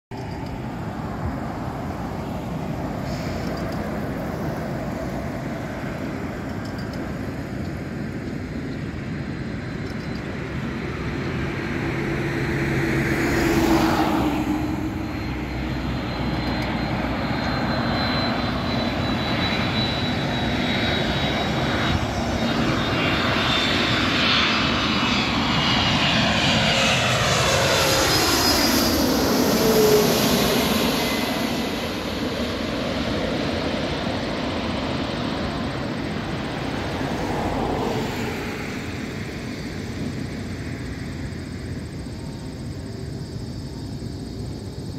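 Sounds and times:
jet engines passing: 0.1 - 44.9
car passing: 11.6 - 19.1, 26.2 - 33.1, 36.2 - 39.4.

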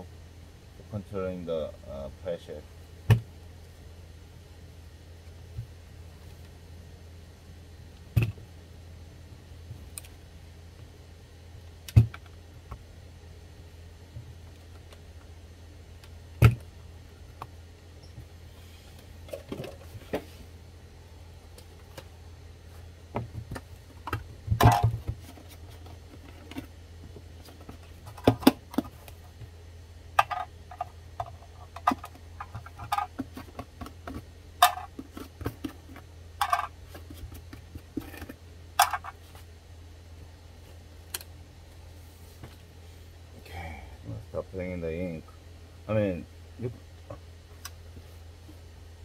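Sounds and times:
plastic parts clicking and knocking: 23.2 - 26.7, 30.2 - 39.2.

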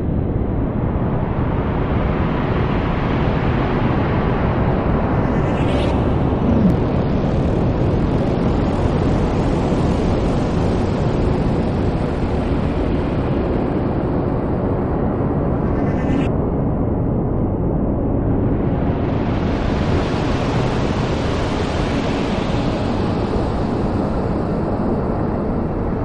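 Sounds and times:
low wash of noise: 3.2 - 9.6
hissing sweep: 5.2 - 7.1.

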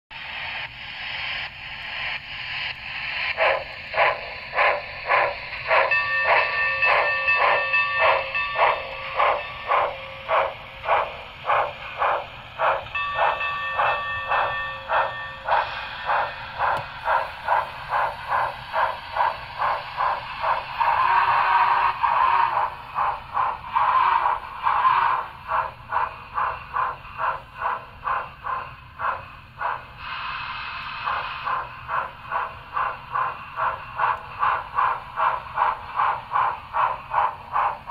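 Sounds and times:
steam exhaust chuffs: 0.2 - 37.9
multi-tone train whistle: 20.8 - 22.8, 23.7 - 25.4.

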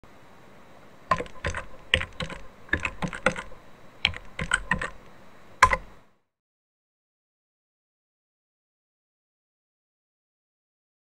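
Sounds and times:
keyboard key clicks: 1.1 - 5.9.

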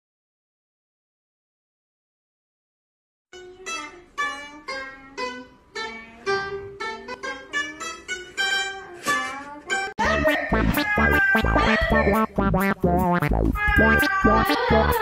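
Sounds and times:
plucked lute melody: 3.4 - 9.9
loud music with heavy bass: 10.0 - 15.0.

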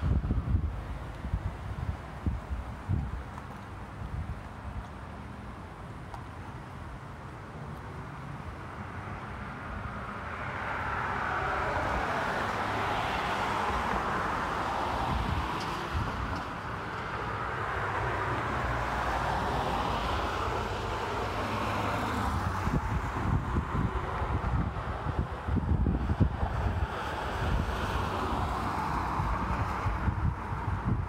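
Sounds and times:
wind buffeting microphone: 0.0 - 4.9, 13.6 - 17.2, 22.2 - 31.0
vehicles passing by: 0.0 - 31.0.

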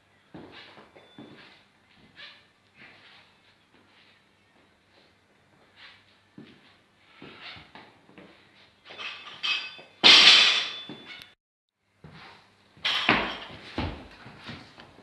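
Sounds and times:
metallic ring of bar and plates: 8.9 - 11.4
barbell crashing onto floor: 10.0 - 11.0.

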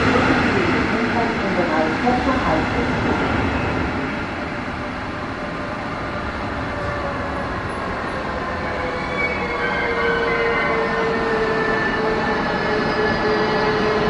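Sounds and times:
train wheels rumbling on rails: 0.0 - 14.0.

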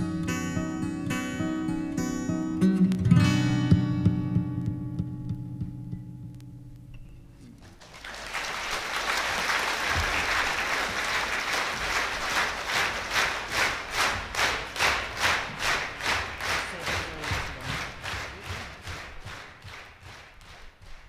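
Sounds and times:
audience applause: 7.6 - 21.0
rhythmic clapping in unison: 7.6 - 21.0.

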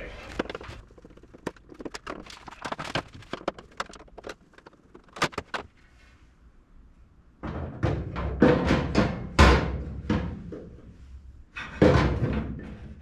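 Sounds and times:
metal parts clicking and knocking: 0.3 - 5.7.

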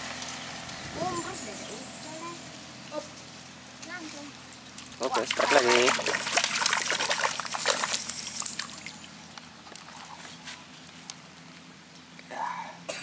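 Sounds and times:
fish thrashing and splashing: 4.8 - 10.4.

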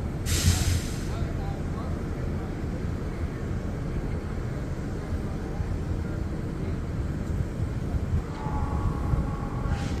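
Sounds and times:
railcar mover rumbling: 0.0 - 10.0.

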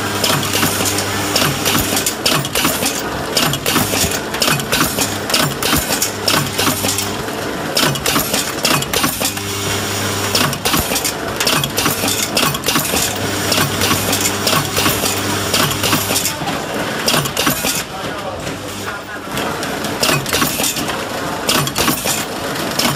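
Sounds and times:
wrapping machine clattering: 0.0 - 22.9.

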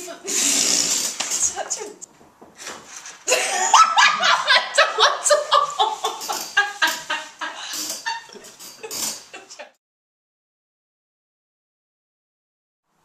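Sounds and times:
person laughing: 3.3 - 9.8.

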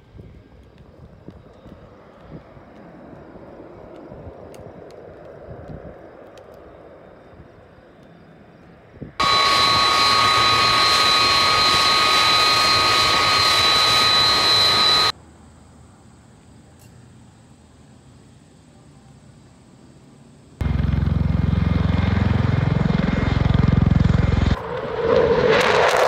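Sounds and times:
faint open-air ambience: 0.0 - 25.0
jet engines whining: 0.4 - 15.2, 20.6 - 26.0.

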